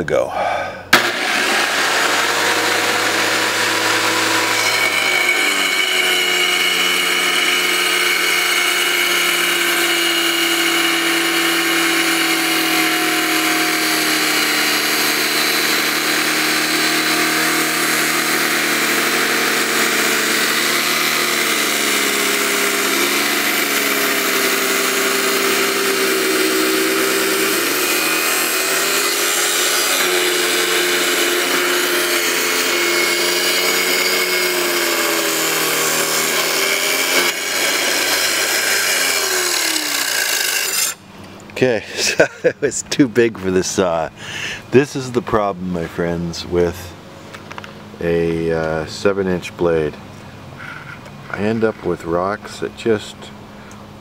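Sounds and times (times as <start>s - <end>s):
wet tile saw cutting rock: 1.0s - 41.0s.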